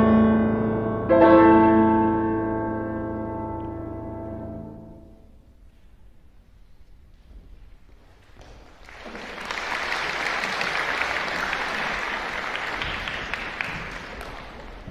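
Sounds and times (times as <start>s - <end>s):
audience applauding: 8.2s - 14.9s.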